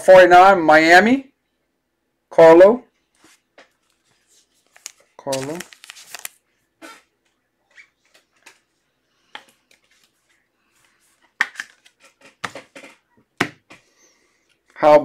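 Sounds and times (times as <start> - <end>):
hands handling cards and packaging: 3.2 - 7.0, 7.8 - 13.8.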